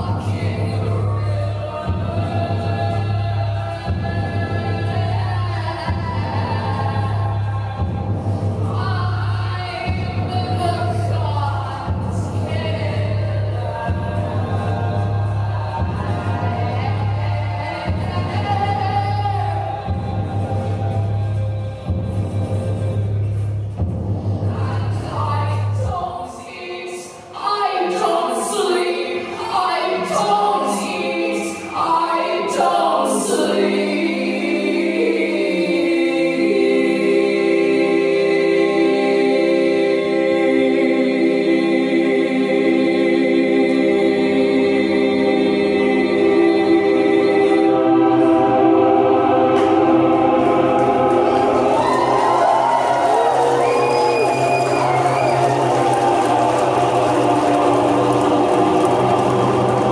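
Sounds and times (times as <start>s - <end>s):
woman singing: 0.0s - 8.0s, 8.7s - 14.5s, 15.5s - 20.2s, 24.5s - 34.6s
choir-like held voices: 0.0s - 59.9s
low drone: 46.9s - 59.9s.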